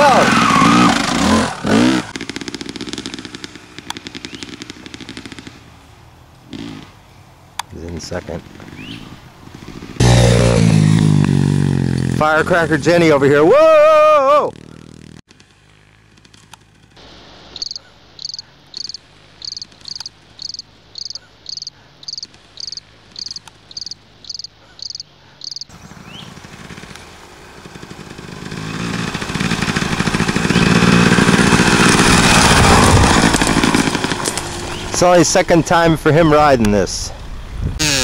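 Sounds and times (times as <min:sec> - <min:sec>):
motorbike engine passing close: 0:00.0 - 0:07.3, 0:07.9 - 0:36.4
cricket chirping: 0:17.5 - 0:25.7.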